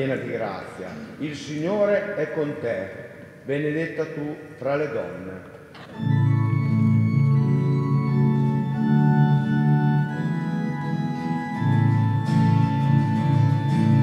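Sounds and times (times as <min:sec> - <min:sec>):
organ playing held chords: 0:05.8 - 0:14.0.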